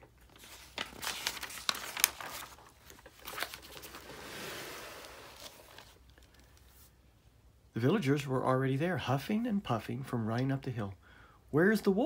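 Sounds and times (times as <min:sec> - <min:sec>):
paper pages crinkling and flicking: 0:00.0 - 0:06.9
paper sliding rustle: 0:00.2 - 0:06.9.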